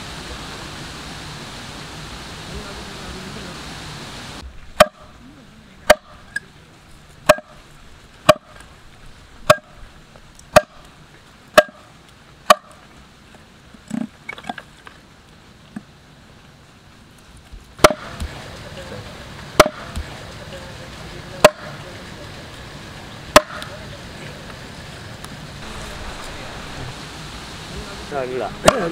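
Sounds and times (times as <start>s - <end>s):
cleaver chopping on wooden block: 4.8s - 5.1s, 5.9s - 6.2s, 7.2s - 7.6s, 8.3s - 8.7s, 9.4s - 9.8s, 10.5s - 10.8s, 11.6s - 11.8s, 12.5s - 12.8s, 17.8s - 18.3s, 19.6s - 20.1s, 23.3s - 23.7s.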